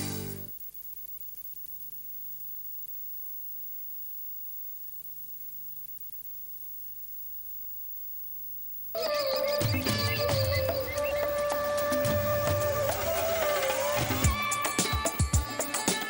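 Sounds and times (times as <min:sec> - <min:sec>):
electrical hum with hiss: 0:00.0 - 0:16.0
loud music: 0:09.8 - 0:16.0.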